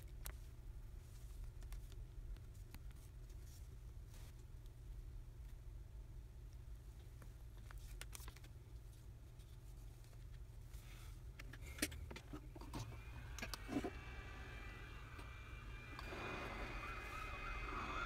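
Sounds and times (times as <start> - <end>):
steady low hum: 8.7 - 18.0
heat gun whir and hiss: 12.5 - 18.0.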